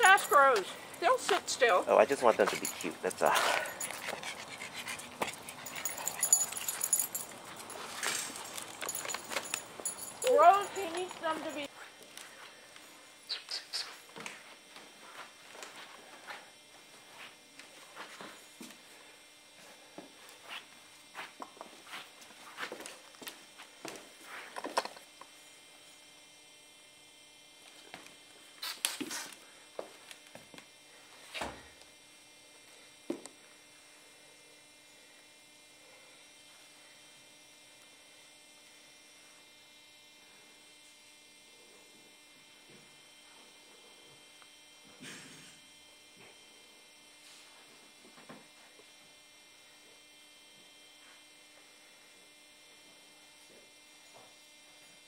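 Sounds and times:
faint electrical hum: 0:00.0 - 0:55.0.

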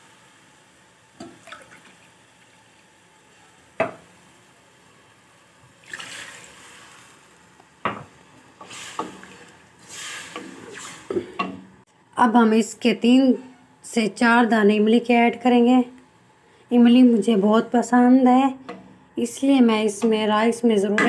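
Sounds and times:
water poured into a pot: 0:01.2 - 0:02.8, 0:05.8 - 0:07.3.

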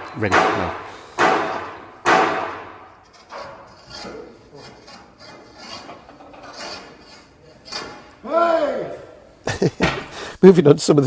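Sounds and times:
steel bar clanging on boiler: 0:00.0 - 0:08.2.

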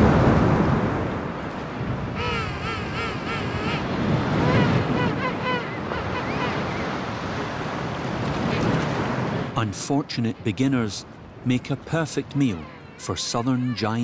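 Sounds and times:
surf breaking on shore: 0:00.0 - 0:02.4, 0:03.0 - 0:14.0.

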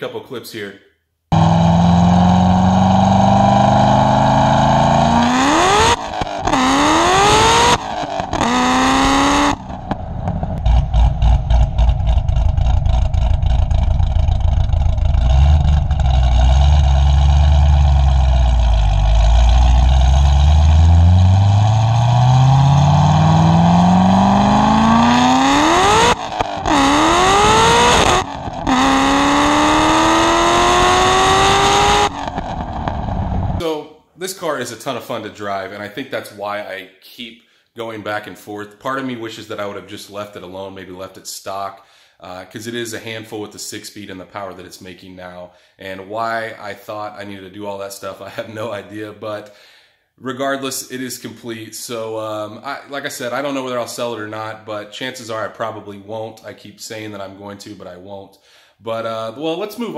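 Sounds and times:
car engine accelerating through gears: 0:01.3 - 0:33.6.

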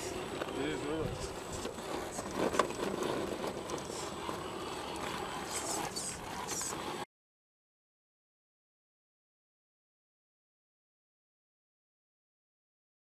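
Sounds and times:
tyres scraping on rock: 0:00.0 - 0:07.1.

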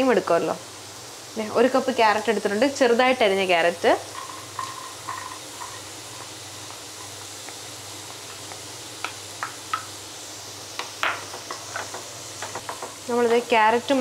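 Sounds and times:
beans sizzling in a wok: 0:00.0 - 0:14.0
spatula and bowl tapping: 0:04.2 - 0:09.9, 0:10.8 - 0:13.4.

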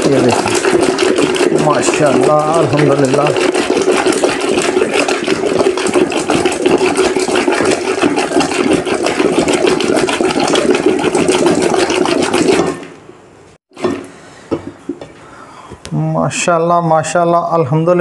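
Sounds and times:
wooden churner rattling slosh: 0:00.0 - 0:13.0.

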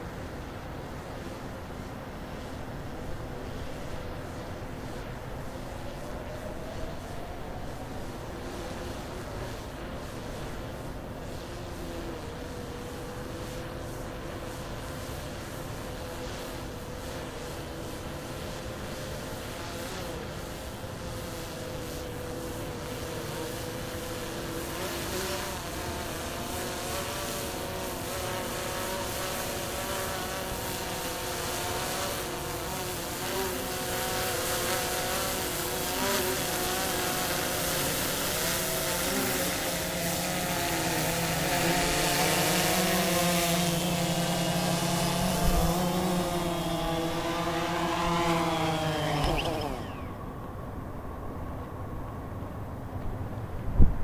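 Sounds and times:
drone propellers buzzing: 0:02.5 - 0:51.5
motors spinning down: 0:23.2 - 0:50.6.

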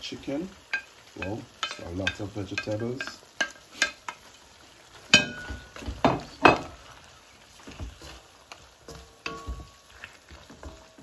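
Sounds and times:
vegetables stirred in pot: 0:00.0 - 0:11.0
wooden spatula knocking metal pot: 0:00.7 - 0:04.0, 0:05.1 - 0:06.8, 0:08.8 - 0:11.0.

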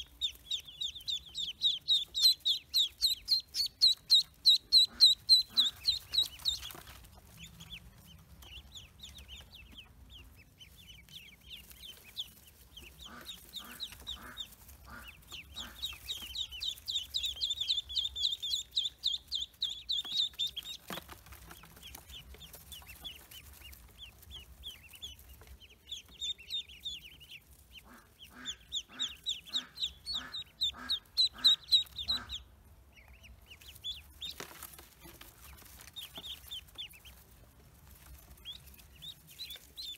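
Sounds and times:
adult duck clucking: 0:00.0 - 0:06.6, 0:12.7 - 0:20.6, 0:26.2 - 0:32.6
ducklings peeping: 0:00.0 - 0:39.9.

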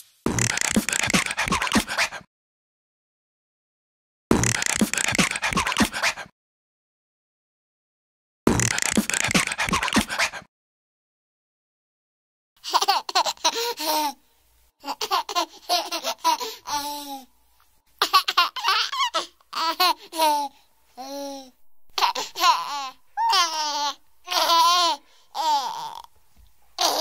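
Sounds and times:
baby giggling: 0:12.6 - 0:14.2, 0:14.8 - 0:17.3, 0:18.0 - 0:26.2, 0:26.8 - 0:27.0.

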